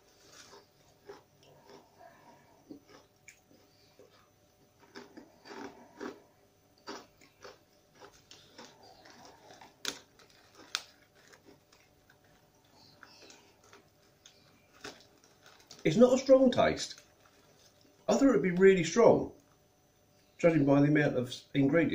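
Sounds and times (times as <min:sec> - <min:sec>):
crunchy chips being chewed: 0:00.0 - 0:18.2.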